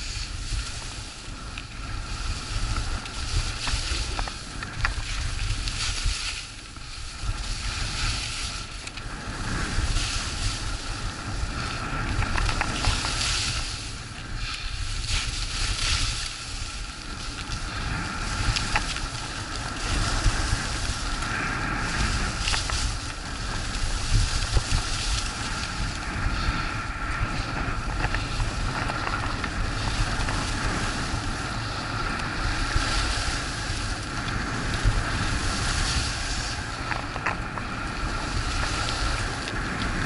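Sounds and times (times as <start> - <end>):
skis hissing on snow: 0.0 - 40.0
wind buffeting microphone: 0.0 - 40.0.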